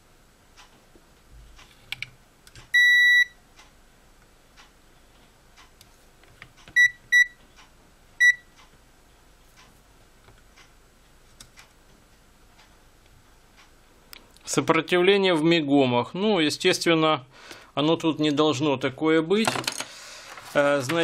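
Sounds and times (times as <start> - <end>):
multimeter beeping: 2.7 - 3.4, 6.8 - 7.4, 8.2 - 8.5.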